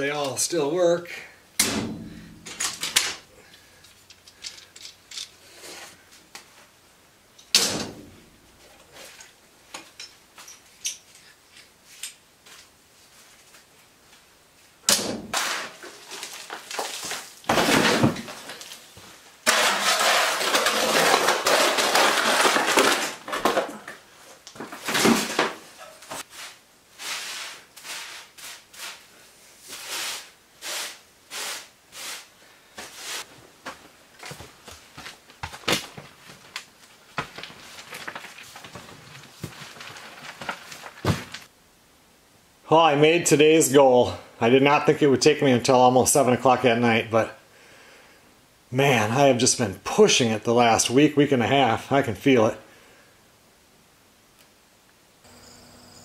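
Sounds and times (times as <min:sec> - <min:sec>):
debris clattering into plastic bin: 0:01.9 - 0:03.2, 0:15.3 - 0:18.9, 0:19.5 - 0:24.0, 0:24.6 - 0:25.7, 0:37.2 - 0:41.5
scraping and rustling: 0:15.3 - 0:41.5
broom sweeping: 0:26.0 - 0:33.4.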